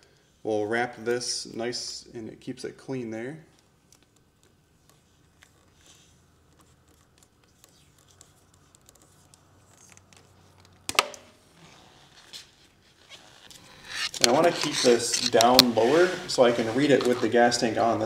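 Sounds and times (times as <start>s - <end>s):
tape rustling and ticking: 3.5s - 17.6s
tape cracking off roll: 4.0s - 17.6s.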